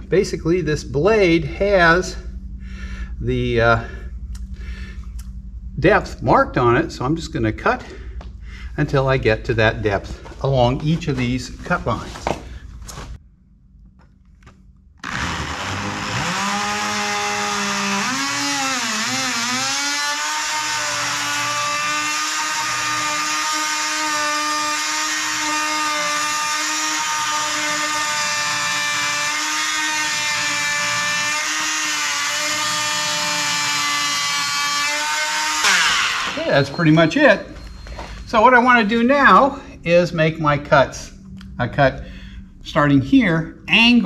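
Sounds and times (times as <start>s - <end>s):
oscillating multi-tool cutting wood: 15.0s - 36.8s.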